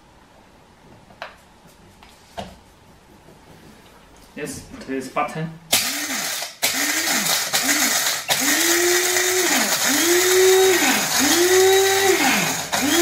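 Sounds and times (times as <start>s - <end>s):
coffee grinder motor: 5.8s - 13.0s.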